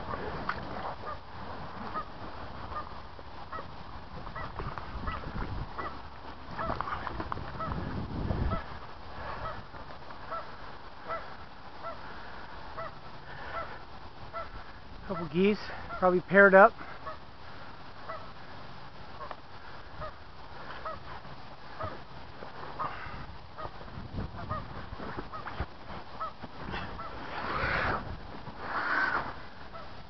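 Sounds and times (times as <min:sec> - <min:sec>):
geese honking: 0:01.9 - 0:07.0, 0:07.6 - 0:07.8, 0:08.5 - 0:12.1, 0:12.7 - 0:17.2, 0:18.0 - 0:18.4, 0:19.2 - 0:21.1, 0:21.7 - 0:22.0, 0:22.7 - 0:23.8, 0:24.4 - 0:25.6, 0:26.2 - 0:28.0, 0:28.6 - 0:30.0.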